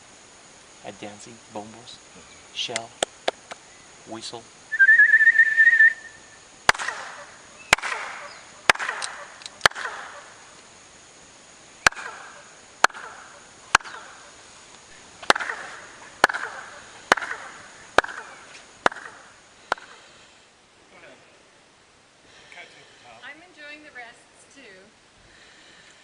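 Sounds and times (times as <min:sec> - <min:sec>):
chirping echo: 0:04.7 - 0:10.6, 0:11.8 - 0:14.4, 0:15.2 - 0:20.1
hand claps: 0:06.7 - 0:07.1, 0:16.2 - 0:16.5, 0:17.1 - 0:17.4.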